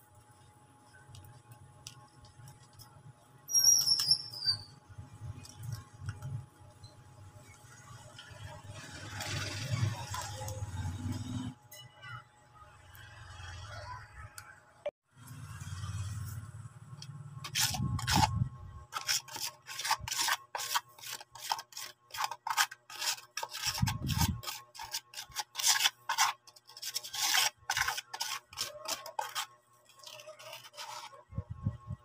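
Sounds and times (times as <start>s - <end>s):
stick stirring cement in tub: 17.4s - 31.4s.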